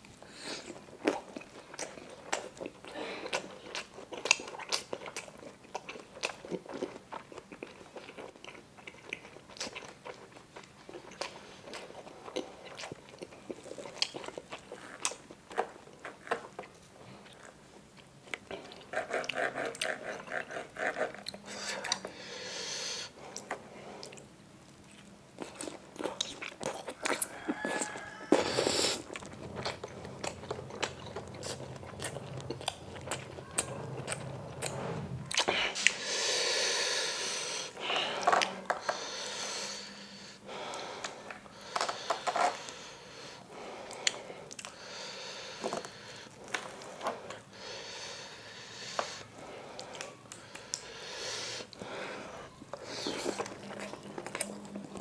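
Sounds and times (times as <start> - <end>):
chewing and biting: 0.6 - 22.1, 23.3 - 36.0, 52.6 - 55.0.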